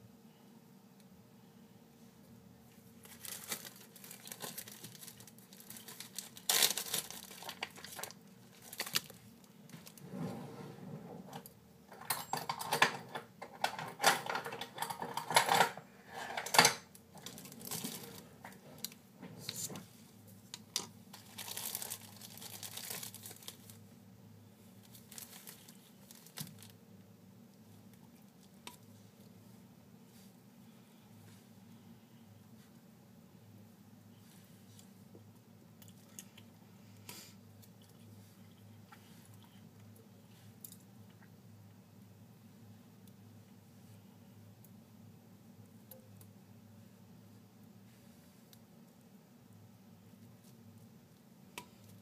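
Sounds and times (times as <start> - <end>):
plastic crinkling: 3.0 - 10.0, 17.2 - 19.8, 21.1 - 23.8, 24.8 - 26.8.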